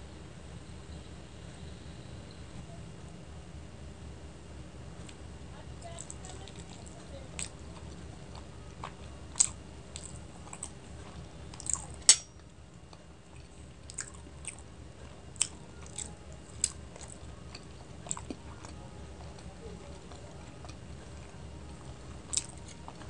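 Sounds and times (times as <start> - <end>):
chewing with wet mouth clicks: 6.0 - 23.0.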